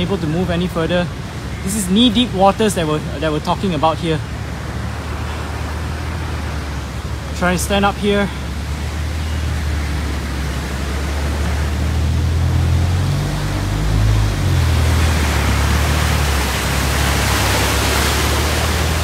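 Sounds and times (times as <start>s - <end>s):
floodwater rushing: 0.0s - 19.0s
vehicle wading through water: 0.0s - 19.0s.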